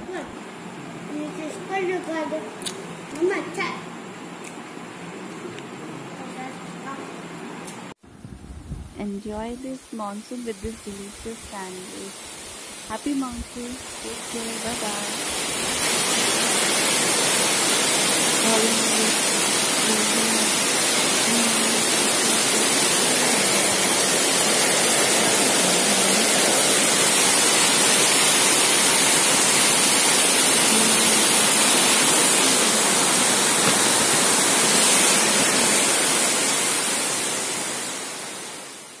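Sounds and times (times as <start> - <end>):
heavy rain pouring: 10.4 - 39.0.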